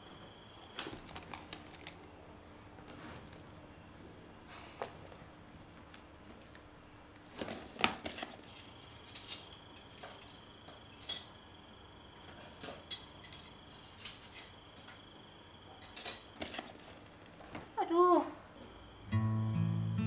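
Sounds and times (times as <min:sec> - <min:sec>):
glass shards clinking on wooden floor: 0:08.4 - 0:11.4, 0:12.2 - 0:15.1, 0:15.8 - 0:16.6.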